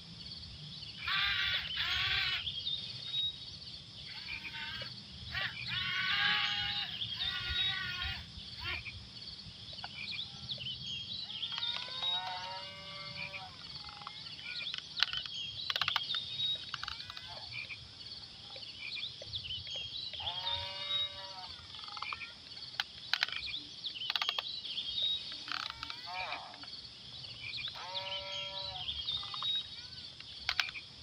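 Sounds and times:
drawn-out animal calls: 1.0s - 2.5s, 4.1s - 8.9s, 11.2s - 17.6s, 20.2s - 22.4s, 25.4s - 26.7s
sharp clicks: 13.7s - 17.8s, 21.8s - 26.7s, 29.1s - 31.0s.

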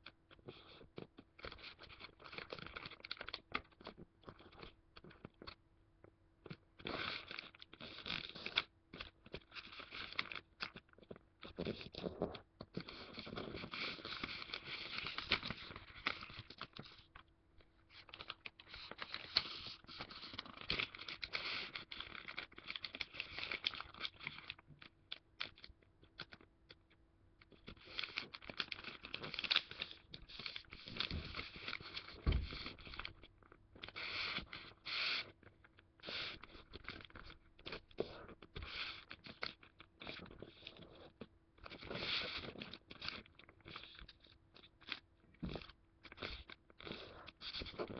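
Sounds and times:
fingers scraping along paper folds: 0.3s - 5.6s, 6.5s - 26.8s, 27.4s - 47.9s
paper rustling and crinkling: 1.4s - 5.3s, 6.9s - 26.5s, 27.5s - 35.3s.

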